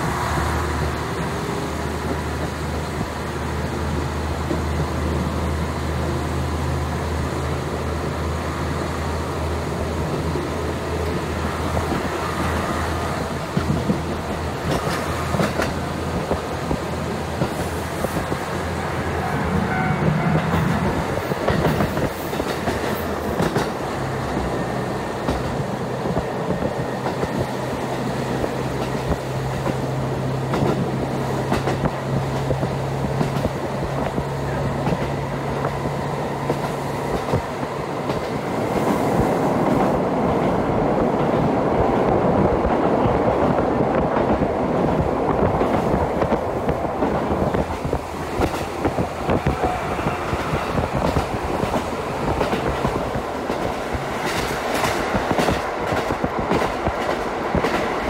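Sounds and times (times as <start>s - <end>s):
train engine rumble: 0.0s - 58.0s
wheels clicking over rail joints: 11.0s - 18.5s, 20.3s - 58.0s.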